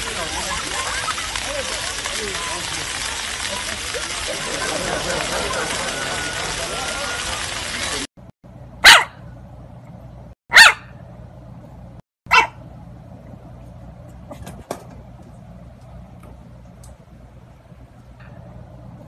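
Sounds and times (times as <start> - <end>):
puppy barking: 8.8 - 9.2, 10.5 - 11.0, 12.3 - 12.6.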